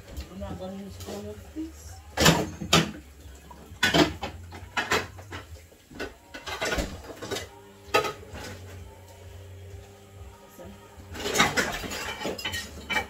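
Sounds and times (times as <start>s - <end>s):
cans clinking and knocking: 2.2s - 8.6s, 11.2s - 13.0s.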